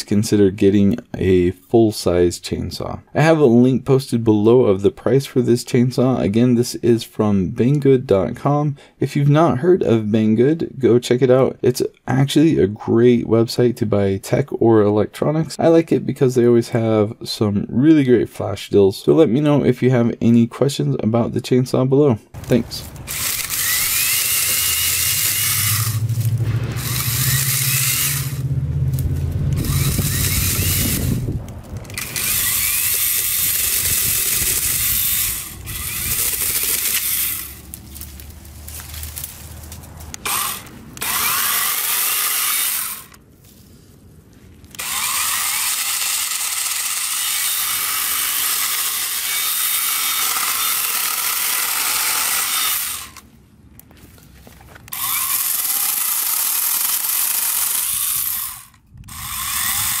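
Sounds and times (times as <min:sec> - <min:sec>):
mini chainsaw cutting branches: 0:22.4 - 0:43.2, 0:44.7 - 0:53.3, 0:54.8 - 1:00.0.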